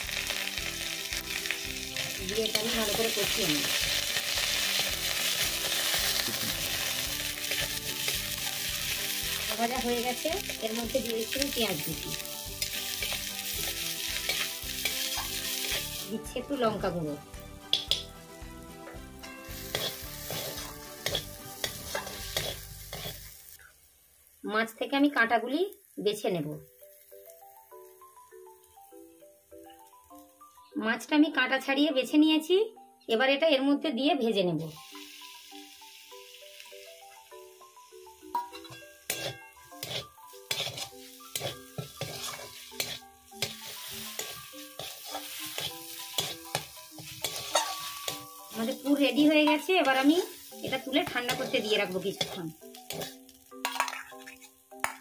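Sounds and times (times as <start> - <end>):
onions sizzling: 0.0 - 30.8, 34.2 - 55.0
spatula scraping metal pan: 19.5 - 23.3, 38.6 - 48.3, 50.7 - 53.9.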